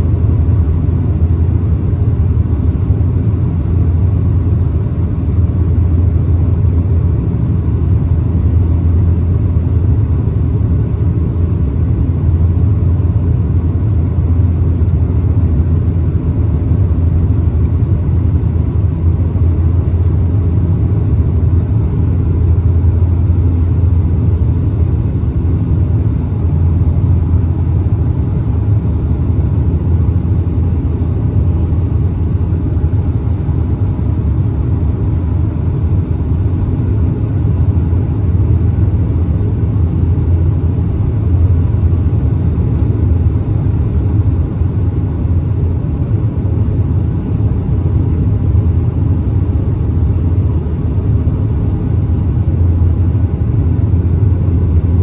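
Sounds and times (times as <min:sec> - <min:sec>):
turboprop engine drone: 0:00.0 - 0:55.0.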